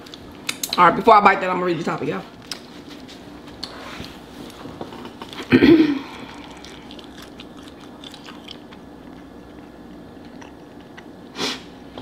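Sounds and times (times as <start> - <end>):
person chewing food: 3.5 - 11.3.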